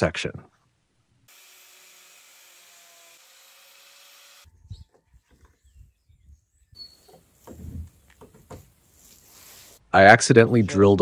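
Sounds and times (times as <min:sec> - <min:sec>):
power sander hissing: 0:01.3 - 0:04.5
plastic parts knocking and rubbing: 0:07.1 - 0:08.8.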